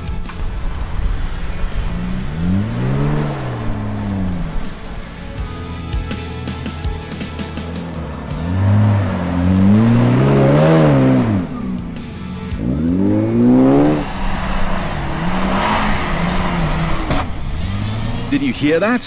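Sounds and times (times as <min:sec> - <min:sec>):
background music: 0:00.0 - 0:19.0
engine revving hard: 0:01.8 - 0:04.8, 0:07.7 - 0:18.4.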